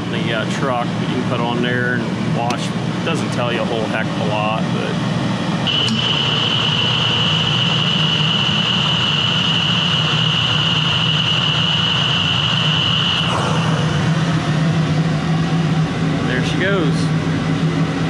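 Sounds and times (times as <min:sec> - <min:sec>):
boiler blower humming: 0:00.0 - 0:18.0
high-pitched tone: 0:05.7 - 0:14.3.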